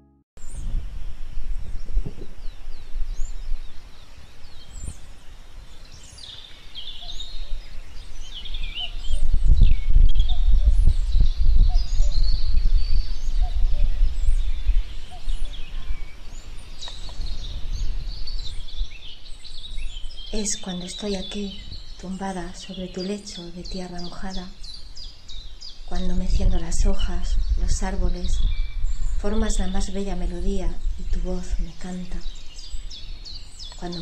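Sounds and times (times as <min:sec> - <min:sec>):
small birds chirping: 0:00.4 - 0:34.0
wind rumble on microphone: 0:00.4 - 0:34.0.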